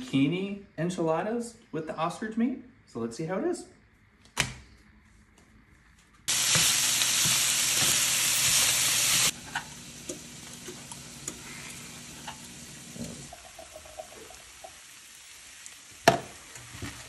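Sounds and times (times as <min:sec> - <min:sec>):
meat sizzling in a frying pan: 0:06.3 - 0:17.0.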